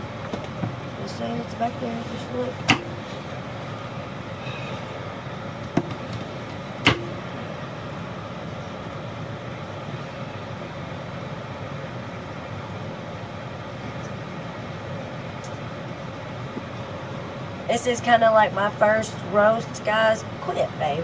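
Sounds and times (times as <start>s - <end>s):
background hum: 0.0s - 21.0s
sharp knocks: 6.8s - 7.2s.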